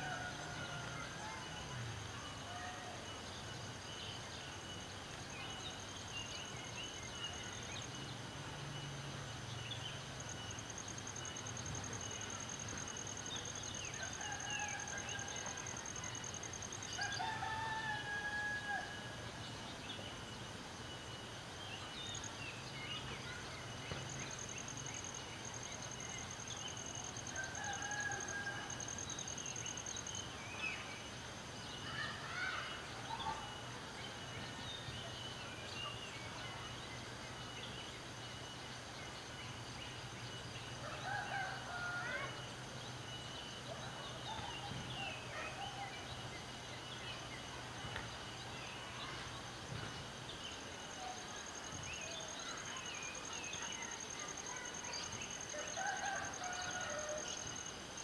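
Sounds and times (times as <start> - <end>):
high steady insect buzz: 0.0 - 34.1, 46.0 - 58.0
rooster crowing: 17.0 - 19.0, 27.4 - 28.9, 55.7 - 57.5.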